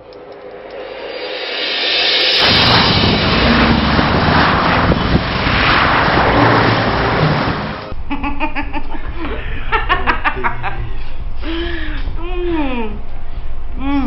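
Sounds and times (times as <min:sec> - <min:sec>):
cars and trucks passing: 0:02.4 - 0:08.0
low steady traffic rumble: 0:02.7 - 0:14.0.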